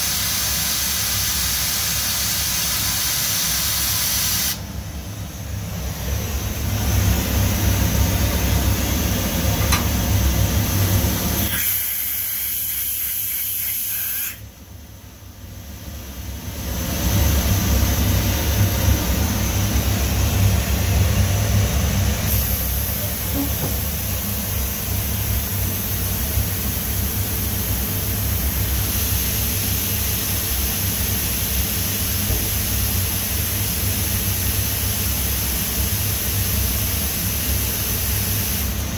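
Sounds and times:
air hiss: 0.0s - 4.6s, 11.3s - 14.4s, 22.2s - 38.9s
machine low hum: 4.6s - 11.5s, 14.4s - 35.1s.

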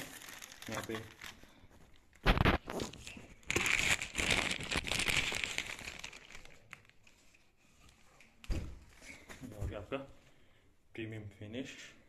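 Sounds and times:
plastic bag crinkling: 0.0s - 7.0s.

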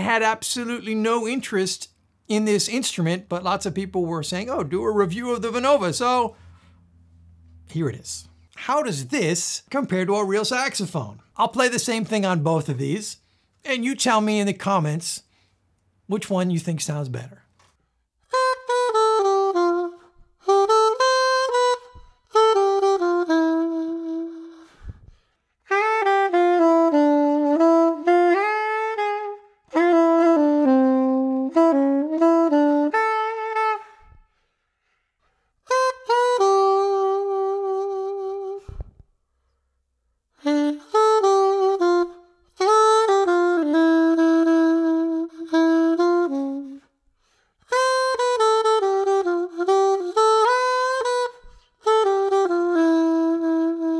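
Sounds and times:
soprano saxophone jazz phrases: 0.0s - 15.5s, 18.3s - 35.0s, 35.6s - 39.1s, 40.4s - 53.9s
plastic reed wind instrument: 18.3s - 25.1s, 35.7s - 39.0s, 40.4s - 46.9s, 47.6s - 53.9s.

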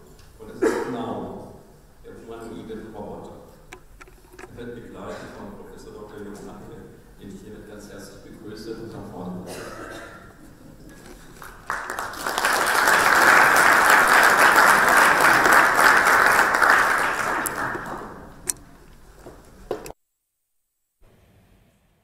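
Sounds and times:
audience applauding: 11.0s - 18.4s.

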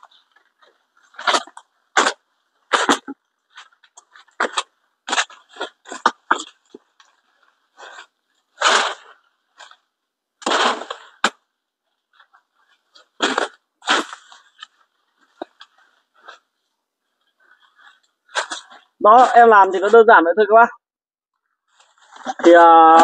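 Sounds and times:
machete chopping branches: 10.4s - 11.4s.

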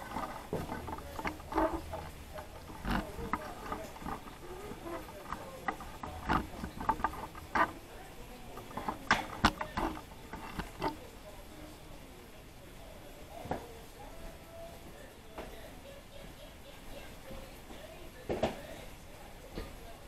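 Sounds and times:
kitchen knocks clicks and rustles: 0.0s - 11.1s, 18.2s - 18.7s.

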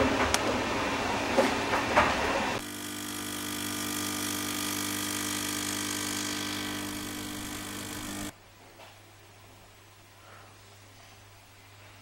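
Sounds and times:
steady multi-tone hum: 0.0s - 8.6s.

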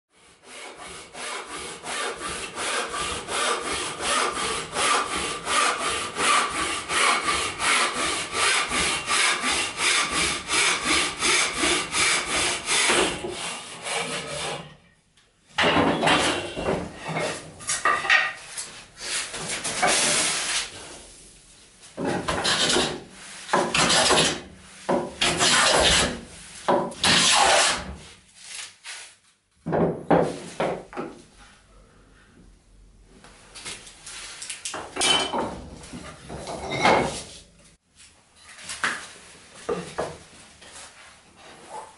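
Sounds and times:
frame saw ripping wood: 23.7s - 24.5s, 25.2s - 26.2s, 27.0s - 27.9s.

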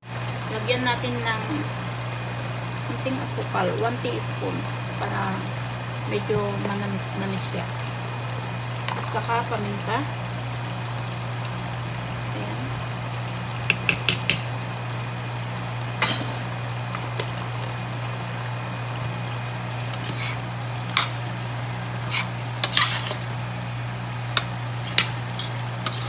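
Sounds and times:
steady low hum: 14.4s - 26.0s
metal ladle scraping pot: 19.9s - 21.2s, 22.0s - 23.3s, 24.4s - 26.0s.

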